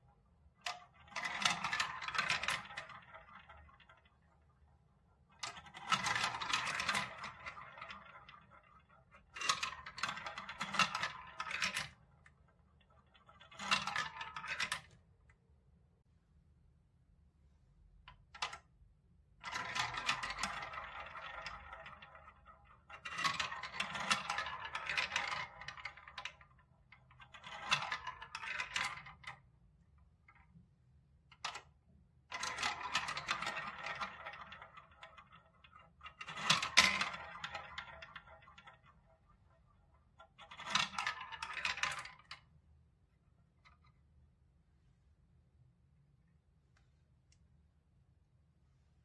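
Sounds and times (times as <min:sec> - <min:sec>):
plastic balls rattling through tubes: 0:00.0 - 0:15.1, 0:19.4 - 0:29.6, 0:31.3 - 0:42.6.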